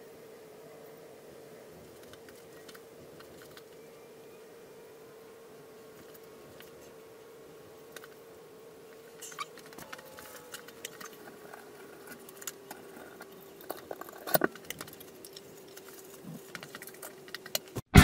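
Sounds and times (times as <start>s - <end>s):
faint steady hum: 0.0s - 18.0s
small objects clicking and rattling: 9.1s - 17.8s.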